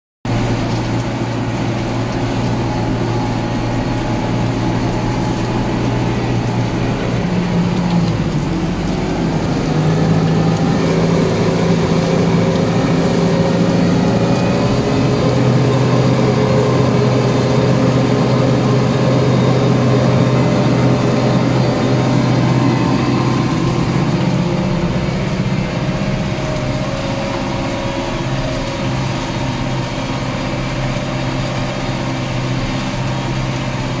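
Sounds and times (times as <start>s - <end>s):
tractor engine running: 0.2s - 34.0s.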